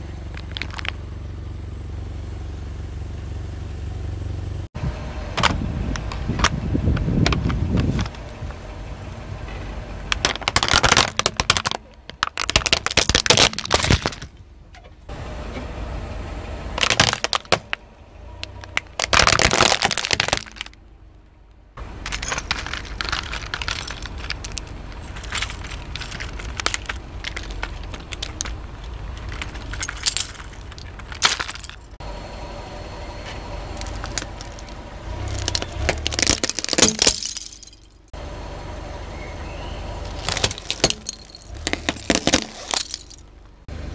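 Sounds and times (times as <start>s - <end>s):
broken plastic pieces rattling: 10.1s - 14.4s, 16.8s - 17.8s, 18.5s - 20.8s, 22.0s - 32.0s, 33.8s - 38.0s, 40.1s - 43.2s
plastic toy cracking under tyre: 10.2s - 14.3s, 18.4s - 20.8s, 35.3s - 37.0s.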